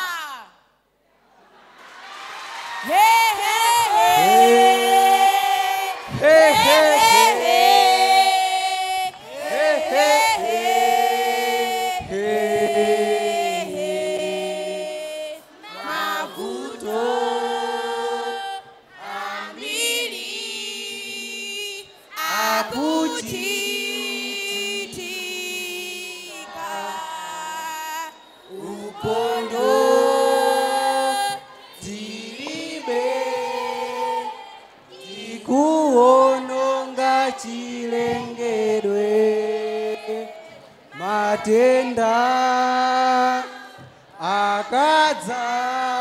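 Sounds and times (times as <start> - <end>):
young voices singing unaccompanied: 1.6 - 46.0.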